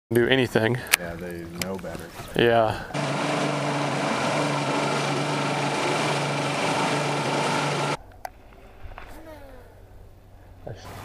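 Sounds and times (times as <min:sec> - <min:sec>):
wind: 0:00.1 - 0:11.0
outboard motor running: 0:02.9 - 0:08.0.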